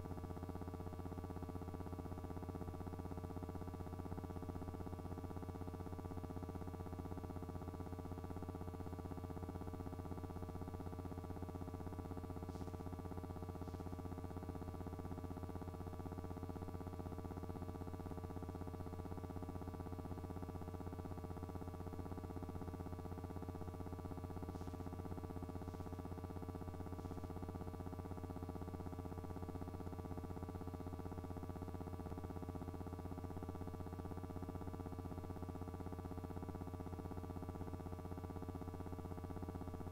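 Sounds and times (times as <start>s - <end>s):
electrical hum: 9.5s - 17.9s, 21.6s - 30.0s.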